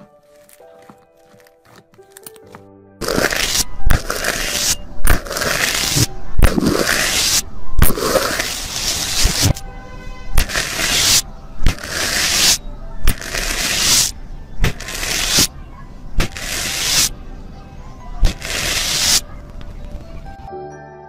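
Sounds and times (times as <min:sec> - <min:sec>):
foamy slime crackling and popping: 0:03.0 - 0:09.6, 0:10.4 - 0:15.5, 0:16.2 - 0:17.1, 0:18.2 - 0:19.6.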